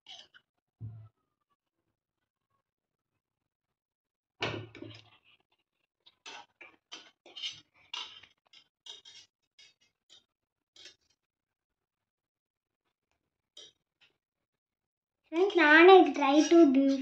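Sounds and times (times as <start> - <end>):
metal tongs clacking on pot: 6.3 - 10.2, 10.8 - 11.1.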